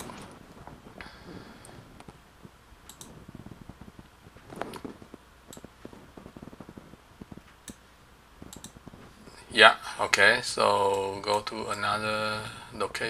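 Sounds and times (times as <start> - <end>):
computer mouse clicks: 2.9 - 3.8, 4.5 - 7.8, 8.4 - 9.1.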